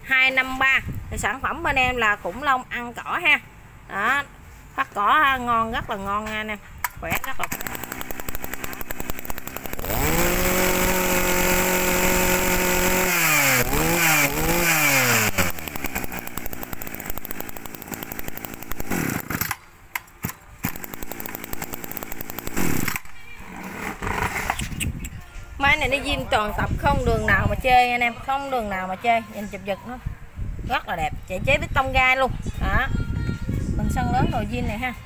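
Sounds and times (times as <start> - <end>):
brush cutter engine revving: 7.1 - 19.6, 20.6 - 24.3.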